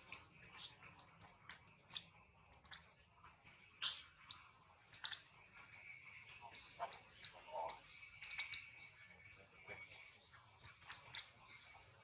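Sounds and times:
faint sharp clicks: 6.5 - 8.7.

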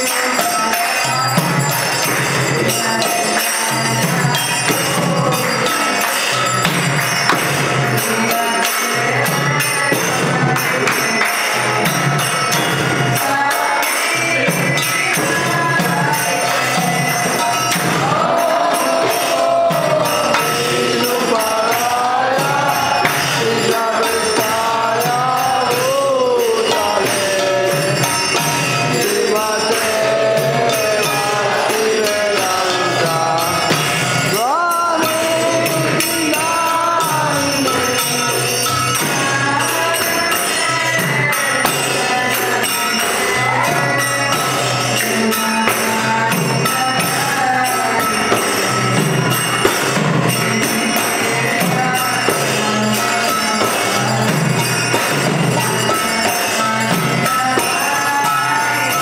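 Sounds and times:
jingling hand cymbals: 0.0 - 59.0
hand drum beat: 14.3 - 37.6
group of voices chanting: 14.5 - 34.5.

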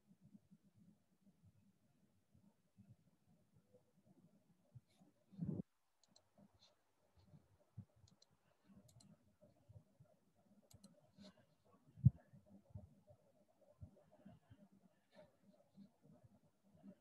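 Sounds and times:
faint sharp clicks: 10.7 - 11.0.

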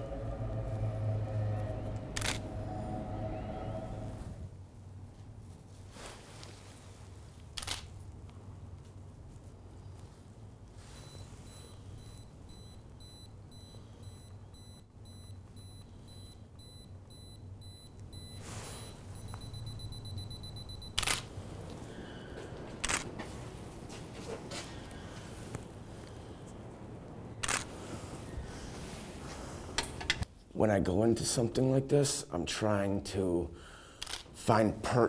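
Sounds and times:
camera self-timer beeping: 11.1 - 21.2.

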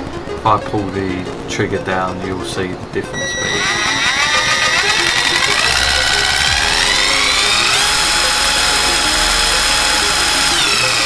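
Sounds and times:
cordless impact wrench whine: 3.2 - 11.0.

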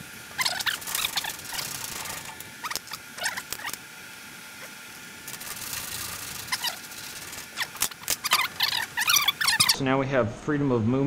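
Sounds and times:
frame rubbing against bulkhead: 0.3 - 3.8, 5.3 - 9.8
metal frame squeaking: 0.4 - 3.8, 5.3 - 9.8.

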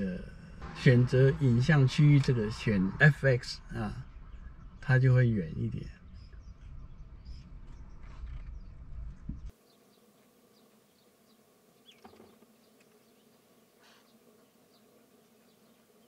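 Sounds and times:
low rumbling: 0.0 - 9.5
soft buzz: 6.0 - 16.0.

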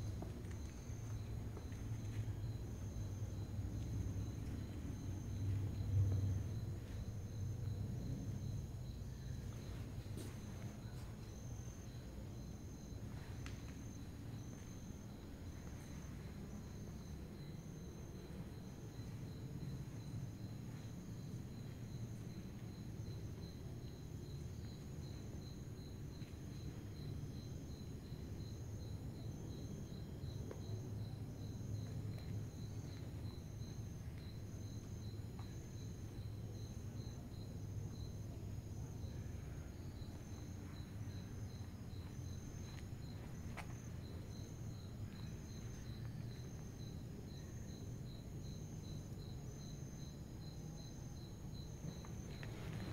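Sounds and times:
low steady rumble: 0.0 - 10.9
cricket chirping steadily: 0.0 - 52.9
high-pitched cricket trills: 0.0 - 52.9.

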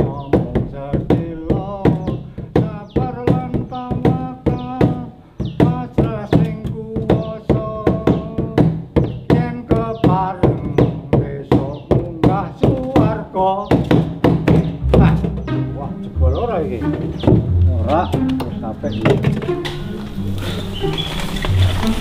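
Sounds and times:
held melody line: 11.9 - 22.0.

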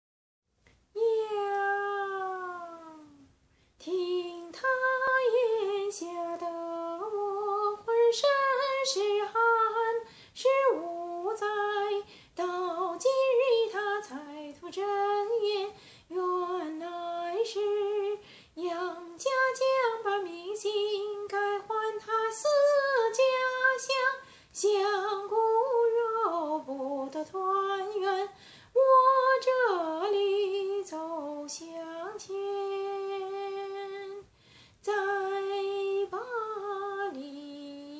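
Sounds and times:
woman singing opera unaccompanied: 0.9 - 37.9.

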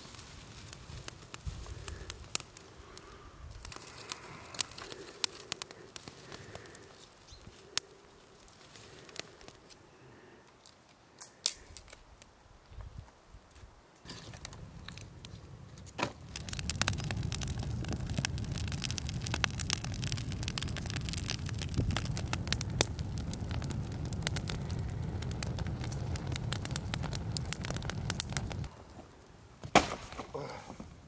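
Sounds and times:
campfire crackling and popping: 0.0 - 12.4, 14.0 - 30.2.

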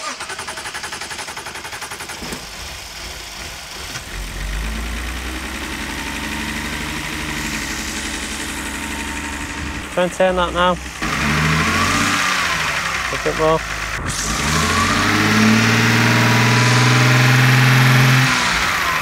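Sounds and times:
starter cranking engine: 0.0 - 4.6
car engine running: 0.0 - 19.0.

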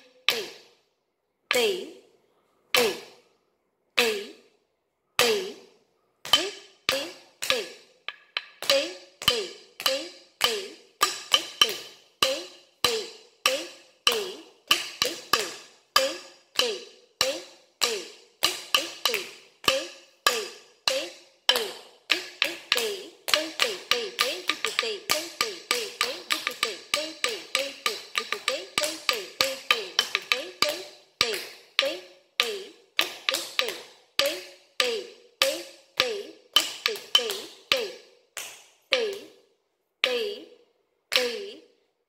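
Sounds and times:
person chanting syllables: 0.0 - 0.7, 1.4 - 3.3, 3.9 - 4.5, 5.2 - 7.9, 8.6 - 38.2, 38.9 - 39.4, 40.0 - 41.8
wooden stick striking wooden block: 2.8 - 3.2, 5.2 - 39.4, 41.1 - 41.6.

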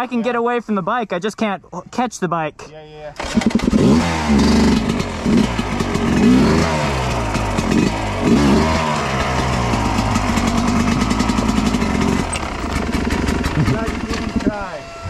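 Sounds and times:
dirt bike engine revving: 3.2 - 15.0.

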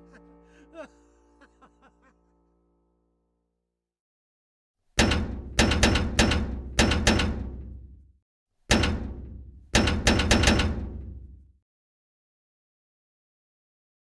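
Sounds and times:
booming impact hits: 5.0 - 8.0, 8.7 - 11.5.

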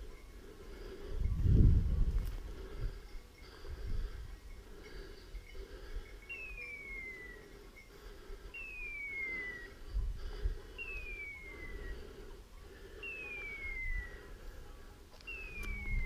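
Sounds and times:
falling whistle-like beep: 6.3 - 7.4, 8.6 - 9.8, 10.8 - 11.8, 13.0 - 14.2, 15.3 - 16.0.

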